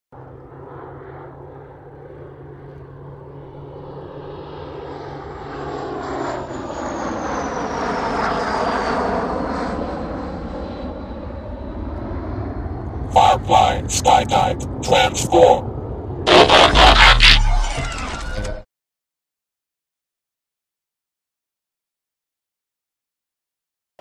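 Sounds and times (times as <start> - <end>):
jet aircraft flyby: 0.2 - 16.7.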